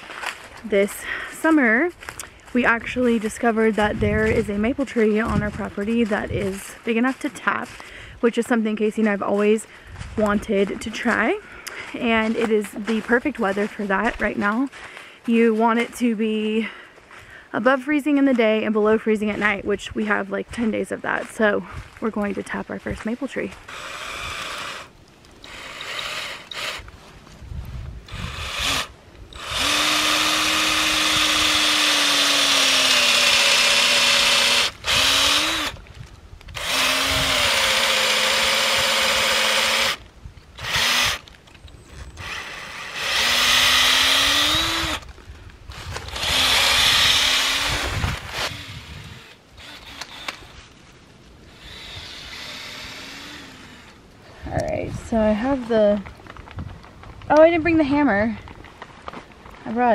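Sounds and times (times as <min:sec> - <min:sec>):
power drill boring into wood: 0:23.6 - 0:26.9, 0:28.1 - 0:35.8, 0:36.5 - 0:40.0, 0:40.6 - 0:41.3, 0:42.0 - 0:45.1, 0:45.7 - 0:50.6, 0:51.5 - 0:54.0.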